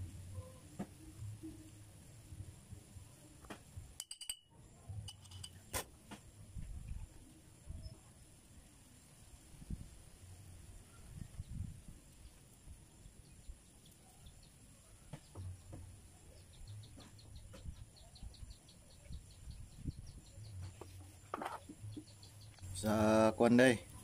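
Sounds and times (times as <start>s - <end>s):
small metal parts clicking: 5.1s - 5.6s
bird calling with high ticks: 20.3s - 22.7s.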